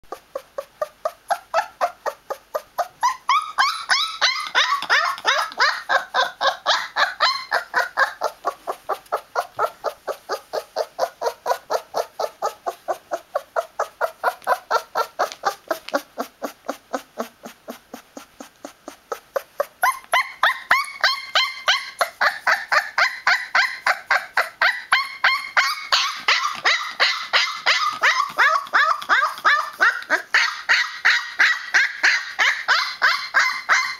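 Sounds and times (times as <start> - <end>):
puppy yelping: 0.1 - 33.9.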